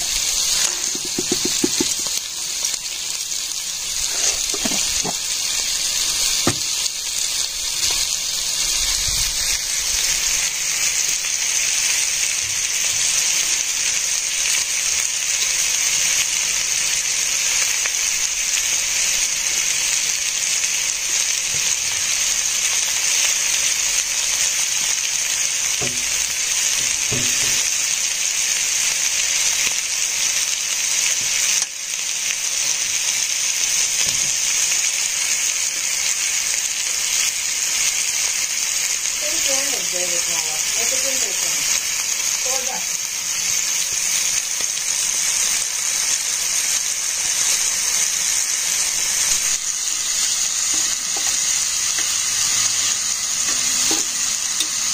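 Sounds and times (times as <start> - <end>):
steady high-pitched hiss: 14.7 - 54.9.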